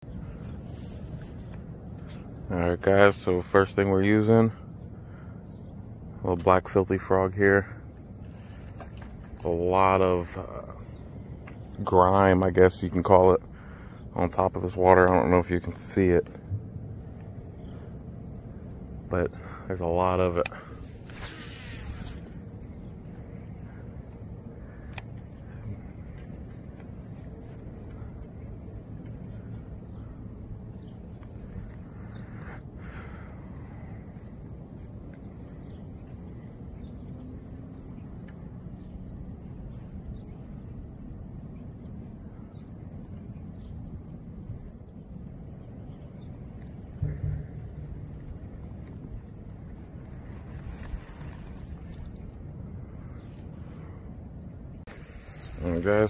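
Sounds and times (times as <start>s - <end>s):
insects trilling: 0.0s - 56.0s
sharp thump: 47.0s - 48.2s.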